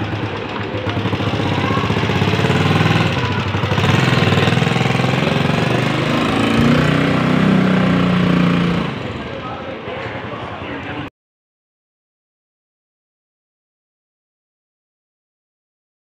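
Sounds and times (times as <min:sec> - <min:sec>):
motorcycle engine chugging: 0:00.0 - 0:10.4.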